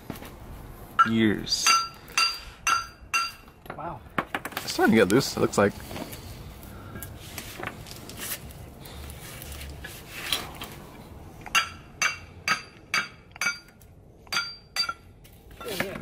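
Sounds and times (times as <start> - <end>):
hammer striking metal rotor: 1.0 - 3.5, 11.5 - 15.0.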